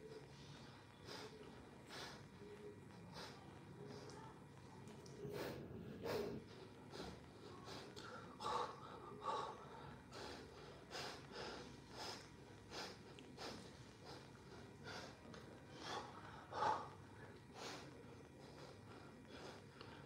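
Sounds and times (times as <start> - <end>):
man breathing hard: 5.3 - 20.0.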